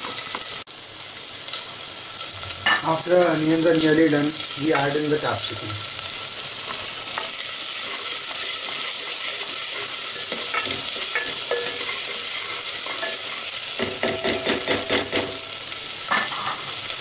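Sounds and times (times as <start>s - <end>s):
vegetables sizzling in hot oil: 0.0s - 17.0s
utensil scraping and knocking pan: 6.7s - 15.4s.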